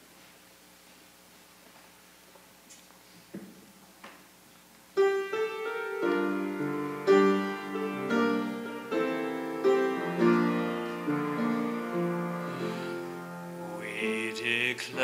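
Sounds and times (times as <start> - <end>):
piano playing slow chords: 4.9 - 15.0.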